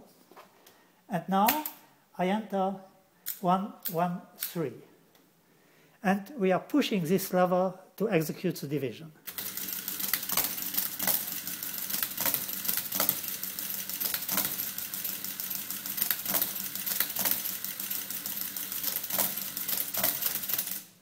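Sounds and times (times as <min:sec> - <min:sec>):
mechanical calculator clattering: 0:09.3 - 0:21.0.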